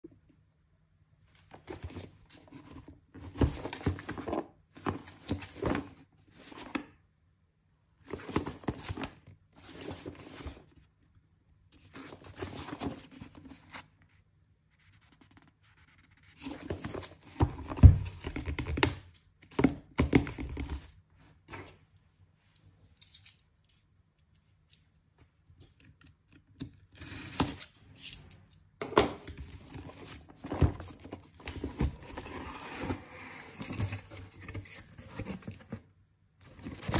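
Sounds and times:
cardboard scraping: 29.6s - 35.8s.

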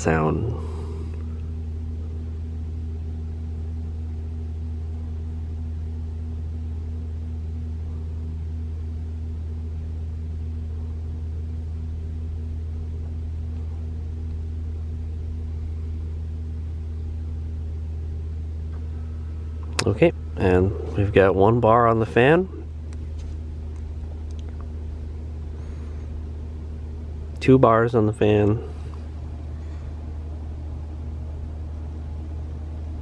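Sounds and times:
heat pump humming: 0.0s - 33.0s.

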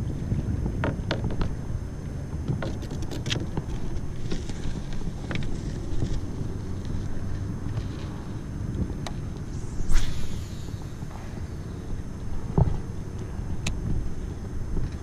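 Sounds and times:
wind buffeting microphone: 8.5s - 15.0s.

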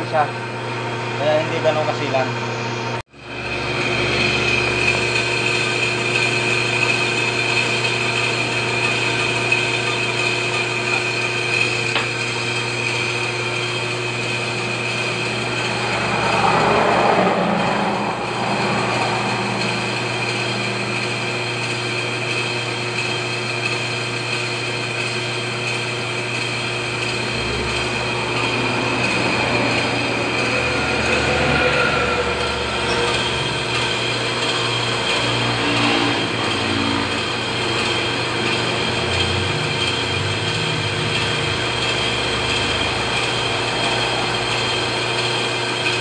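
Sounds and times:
metal lathe whine: 0.0s - 46.0s
rushing noise: 14.3s - 22.6s, 26.6s - 38.2s.

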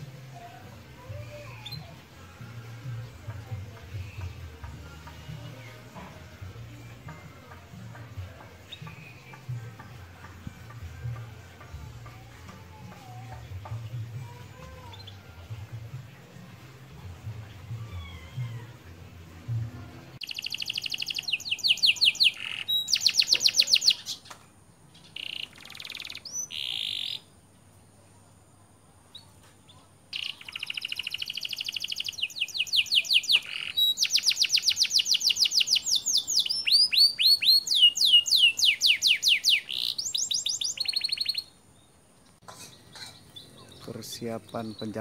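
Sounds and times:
canary singing trills: 20.2s - 27.4s, 29.0s - 41.9s, 42.5s - 45.0s.

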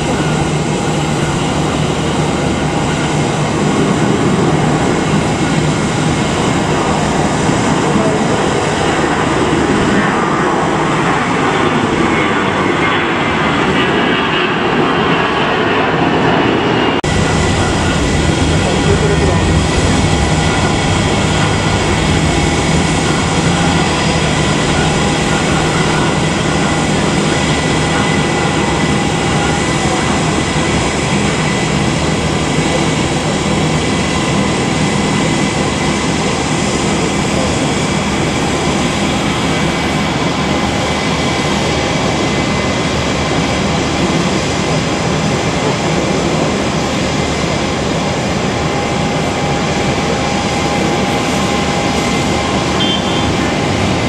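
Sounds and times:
jet engines idling: 0.0s - 54.0s.

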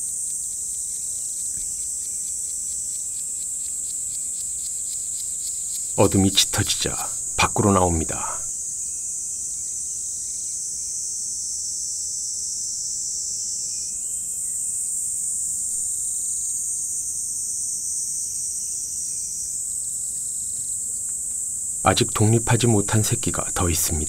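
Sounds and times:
crickets chirring: 0.0s - 9.0s.

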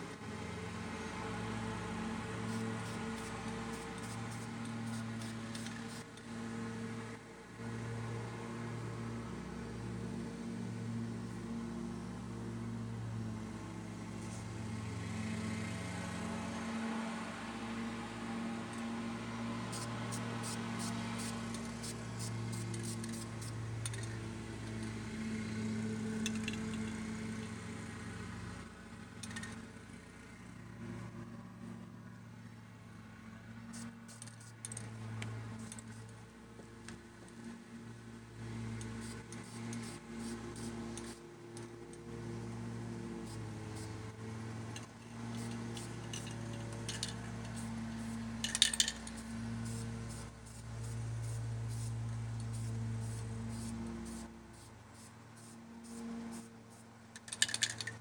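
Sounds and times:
light clicks and rattles: 57.1s - 58.0s.

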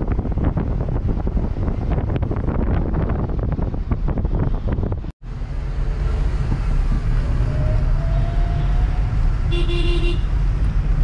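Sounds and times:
wind buffeting microphone: 0.0s - 5.1s
vehicle road rumble: 0.0s - 11.0s.

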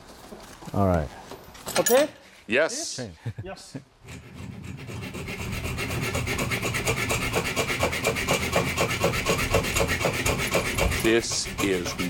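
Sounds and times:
hand saw cutting steel: 4.0s - 12.0s.

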